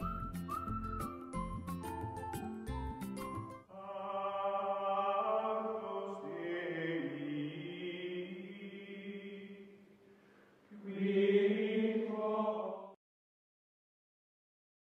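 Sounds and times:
chant-like held notes music: 3.6 - 9.7.

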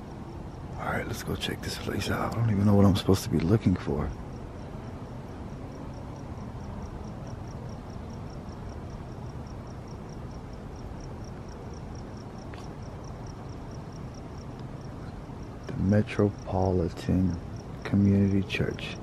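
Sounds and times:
cricket chirping: 0.0 - 19.0
low steady rumble: 0.0 - 19.0.

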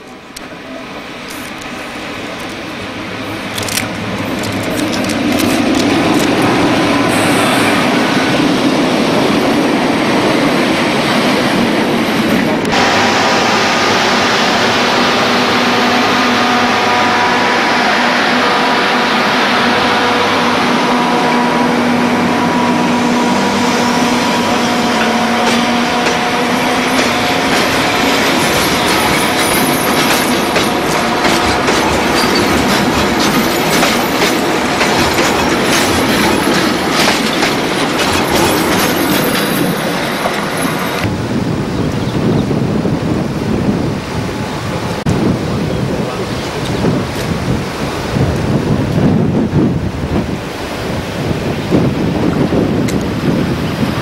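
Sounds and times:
train wheels whining on rails: 0.0 - 54.0
wheels clicking on rail joints: 1.2 - 7.5, 24.4 - 41.1.

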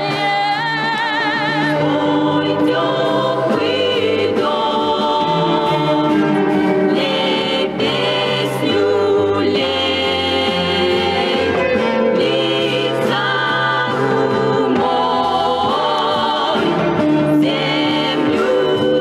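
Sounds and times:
woman singing with vibrato: 0.0 - 6.2
choir-like vocals: 0.0 - 19.0.

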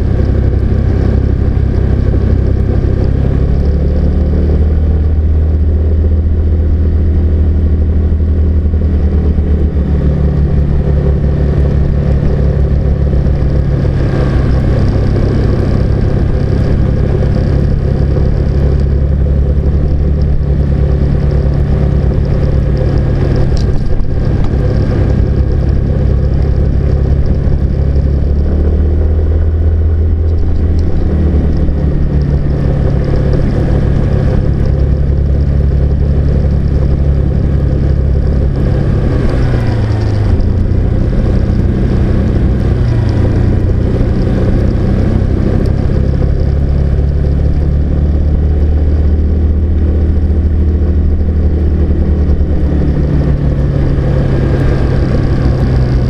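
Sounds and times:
car engine drone: 0.0 - 56.0
tyre and road noise: 0.0 - 56.0.

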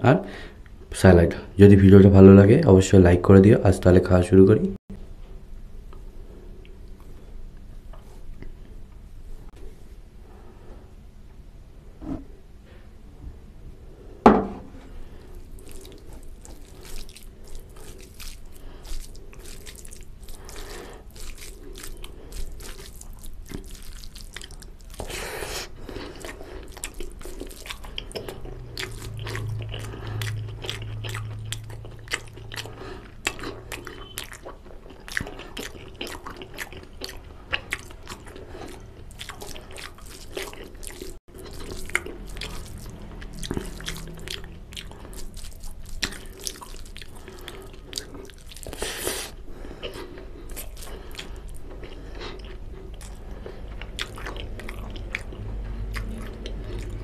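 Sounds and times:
loud knock: 14.3 - 14.7
hand squishing rice and gravy: 15.0 - 57.0.

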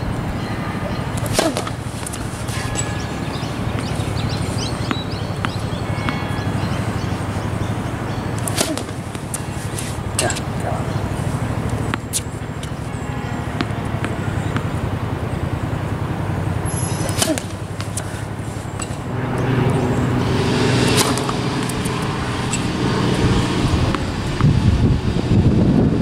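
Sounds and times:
low hum: 0.0 - 25.7
distant traffic: 0.0 - 26.0
tennis ball bounced and struck: 0.8 - 15.3, 16.2 - 24.6
wind on microphone: 19.0 - 26.0.

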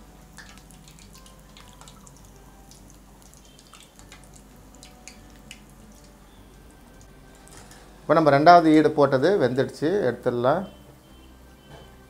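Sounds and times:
hot oil crackling and popping: 0.0 - 7.8.

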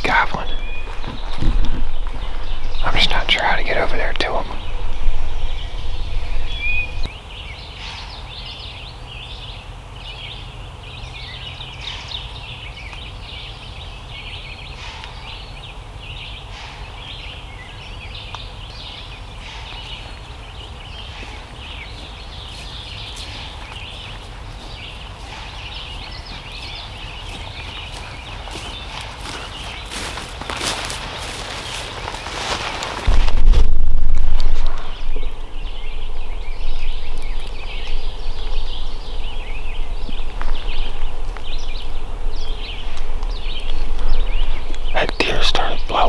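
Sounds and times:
low rumble: 0.0 - 7.1, 32.7 - 45.0
songbirds chirping and singing: 0.0 - 33.6, 34.4 - 46.0.

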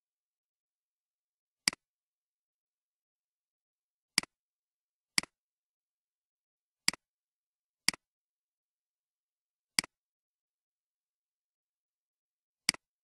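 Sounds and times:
computer mouse clicks: 1.6 - 1.9, 12.6 - 13.0.

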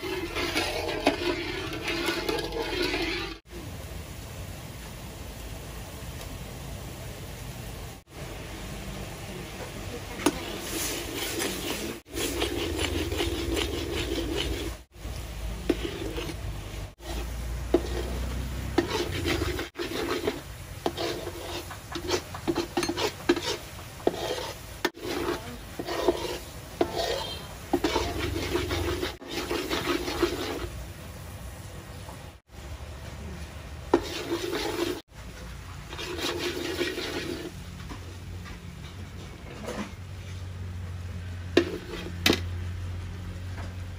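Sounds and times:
metal tongs scraping a wok: 0.0 - 3.5, 10.2 - 14.9, 15.7 - 30.8, 33.9 - 35.0, 35.9 - 37.5, 41.6 - 42.4
syrup bubbling: 0.0 - 3.5, 10.2 - 30.8, 35.9 - 37.6.

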